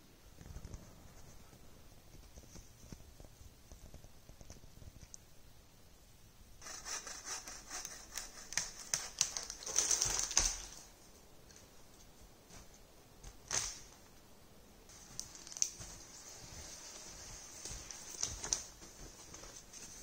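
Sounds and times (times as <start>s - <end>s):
footsteps crunching in snow: 14.9s - 20.0s.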